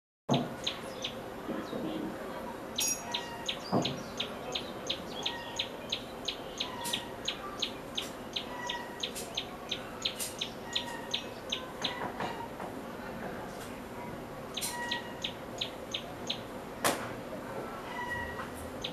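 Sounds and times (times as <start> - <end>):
bird singing high sharp notes: 2.8 - 12.0, 14.5 - 16.4.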